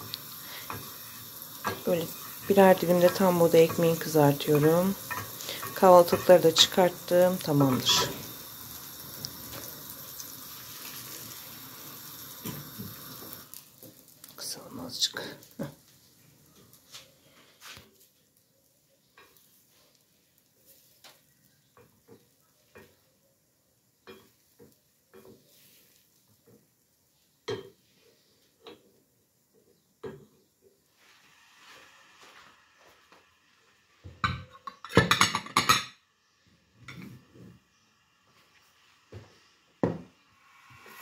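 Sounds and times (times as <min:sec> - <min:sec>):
butter sizzling in a pan: 0:00.0 - 0:41.0
eggs poured into pan: 0:00.1 - 0:14.5
wooden spoon scraping a pot: 0:00.6 - 0:08.3.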